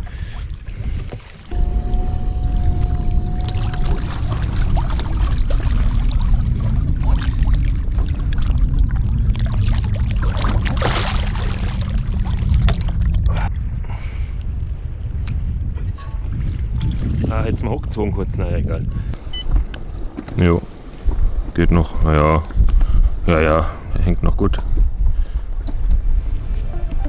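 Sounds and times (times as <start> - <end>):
water splashing and sloshing: 0.0 - 13.6, 19.2 - 21.6
thin steady whine: 1.5 - 5.8
heavy low rumble: 1.5 - 16.7
fish thrashing at surface: 9.6 - 13.2.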